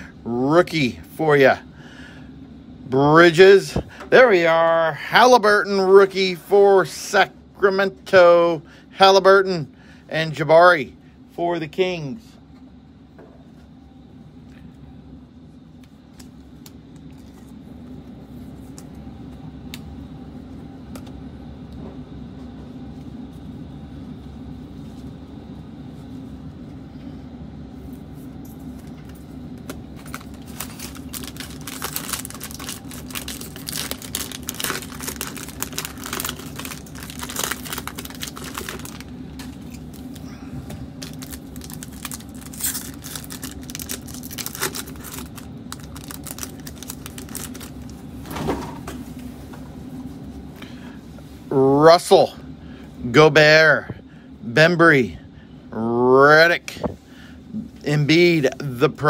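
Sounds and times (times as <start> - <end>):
steady low hum: 0.0 - 59.0
foil packs crinkling: 29.9 - 48.2.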